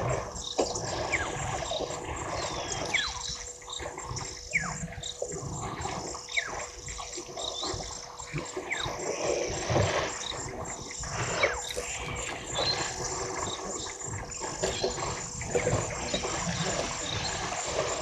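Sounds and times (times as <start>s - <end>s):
insect chirring: 0.0s - 18.0s
water splashing and trickling: 0.0s - 18.0s
high whistled calls: 1.0s - 3.4s, 4.3s - 4.8s, 10.2s - 18.0s.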